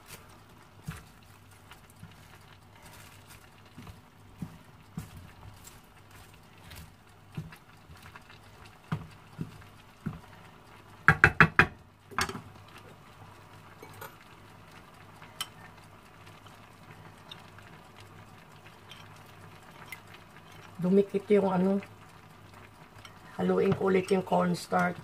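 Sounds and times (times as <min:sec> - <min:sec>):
loud knocks on pan: 0:11.1 - 0:12.4.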